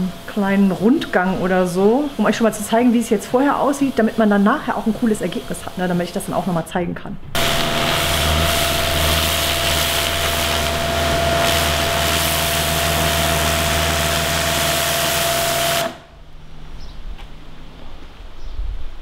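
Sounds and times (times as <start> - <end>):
water jet hissing: 0.0 - 6.7, 7.4 - 16.1
pressure washer motor whining: 7.3 - 16.2.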